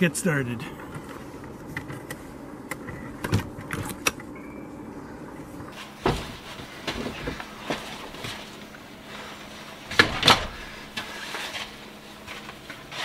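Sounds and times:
door clicks and knocks: 9.9s - 10.6s.

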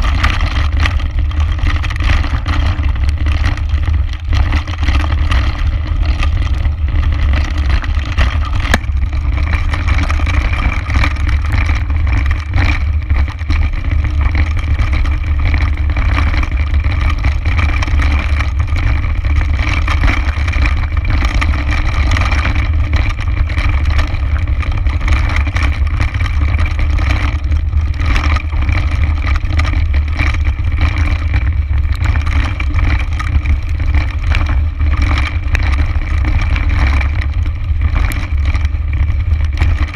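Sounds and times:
tyres crunching on loose stones: 0.0s - 17.6s
bike rattling: 0.0s - 39.9s
wind rumble on microphone: 0.0s - 39.9s.

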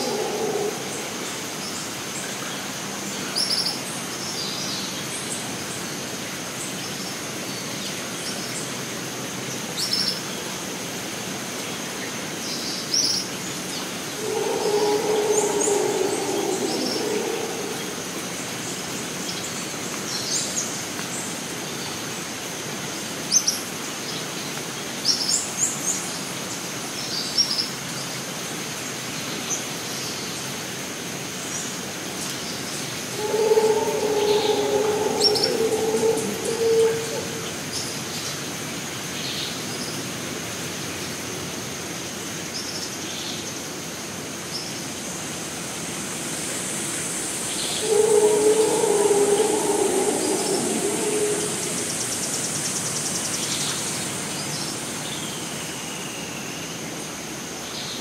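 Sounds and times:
high insect drone: 0.0s - 2.5s, 14.0s - 19.1s, 33.0s - 38.0s, 46.5s - 54.3s.

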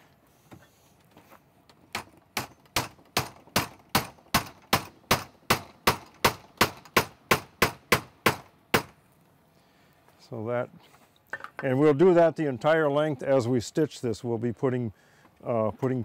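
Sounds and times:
wooden peg being hammered: 1.9s - 9.0s.

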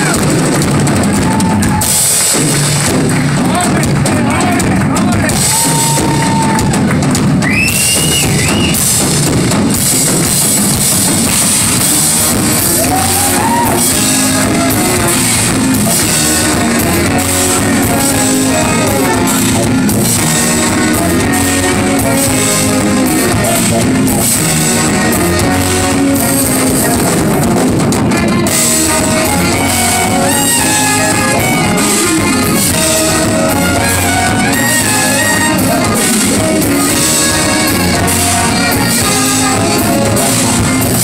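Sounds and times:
drum kit: 0.0s - 41.0s
low brass bass line: 8.3s - 41.0s
saxophone solo: 11.5s - 27.4s, 28.1s - 41.0s.

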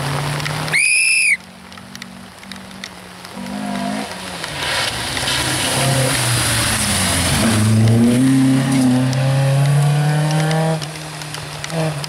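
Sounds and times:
rally car engine at high revs: 3.3s - 12.0s.

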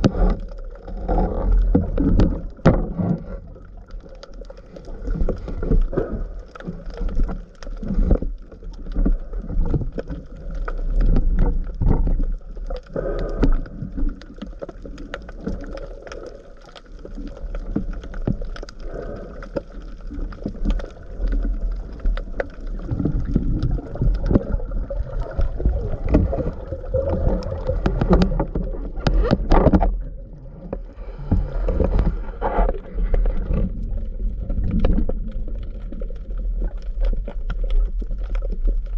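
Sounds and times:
underwater water movement and gurgling: 0.0s - 38.9s.

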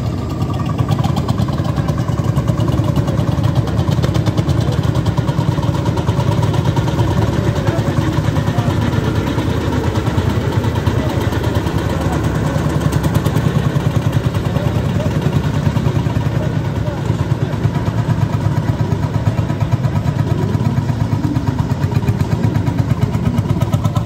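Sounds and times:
tractor engine pulsing: 0.0s - 24.0s.

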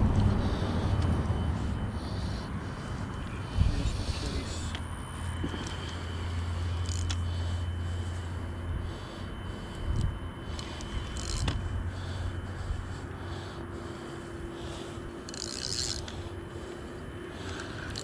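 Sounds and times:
steady low hum: 0.0s - 18.0s
fishing reel handling scraping: 4.1s - 8.2s, 9.5s - 13.0s, 13.8s - 16.8s, 17.4s - 18.0s.

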